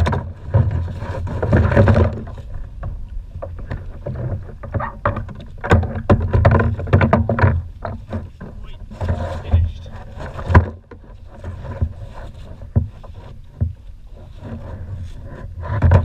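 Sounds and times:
water slapping kayak hull: 0:00.0 - 0:16.0
sharp knocks and clicks: 0:02.8 - 0:11.0.

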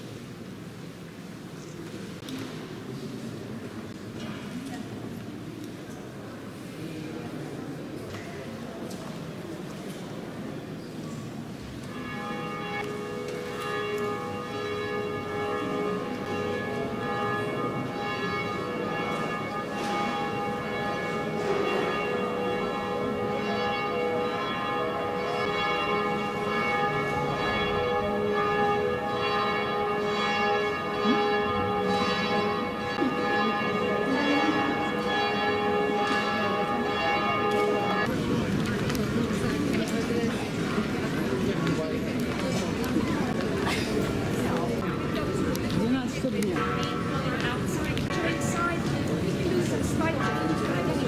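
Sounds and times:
church bells ringing: 0:11.6 - 0:38.6, 0:44.0 - 0:51.0.

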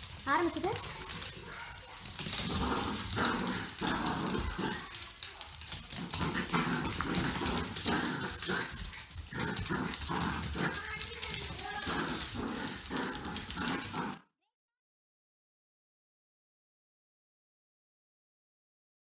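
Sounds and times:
small dogs growling: 0:00.0 - 0:14.3.

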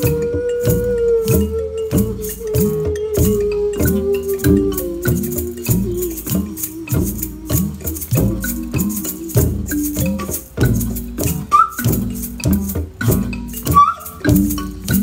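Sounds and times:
held musical note: 0:00.0 - 0:10.4
shaker rattling: 0:00.0 - 0:15.0.

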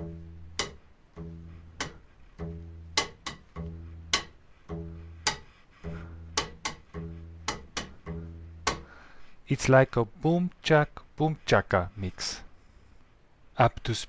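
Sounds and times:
bass strings slapping fingerboard: 0:00.0 - 0:09.0
double bass plucked notes: 0:00.0 - 0:09.2.

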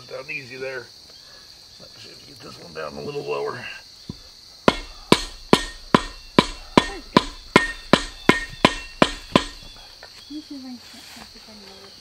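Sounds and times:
shovel striking wooden stake: 0:04.1 - 0:09.8.

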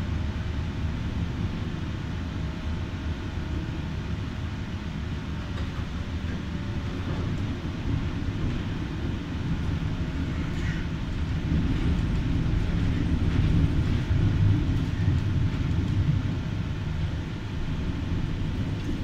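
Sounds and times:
tram wheels rumbling on rails: 0:00.0 - 0:19.0.

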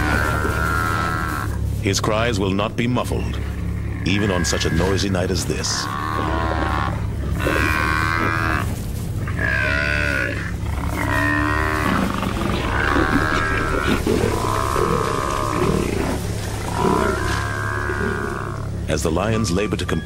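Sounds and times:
buffalo bawling in distress: 0:00.0 - 0:01.8, 0:03.3 - 0:20.0
low rumble: 0:00.0 - 0:19.9.

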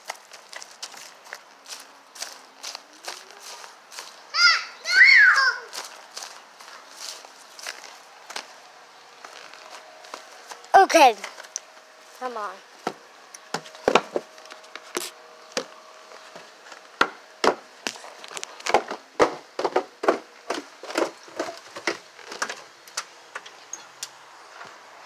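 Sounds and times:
knocks and clacks on wood: 0:18.7 - 0:22.5.

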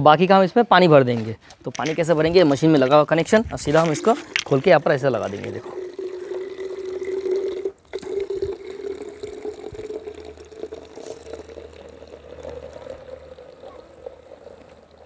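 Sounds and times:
water pouring into plastic bottle: 0:01.6 - 0:15.0.

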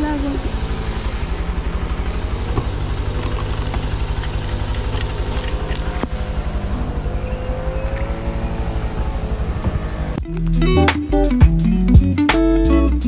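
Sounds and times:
motorcycle engine running: 0:00.0 - 0:12.2.

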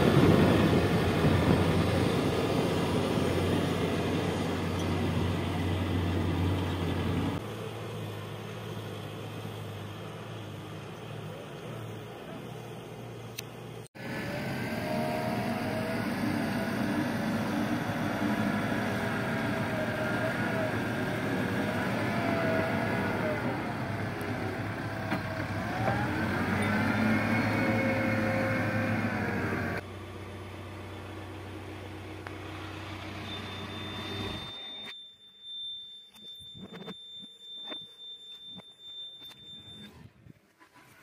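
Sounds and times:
diesel engine working: 0:00.0 - 0:35.0
steady high beep: 0:33.2 - 0:40.0.

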